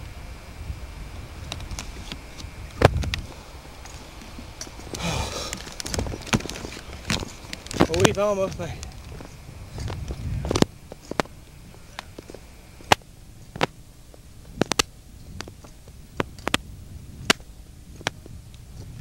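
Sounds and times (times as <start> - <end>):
low handling rumble: 0.0 - 19.0
hands and feet on rock: 2.8 - 13.0.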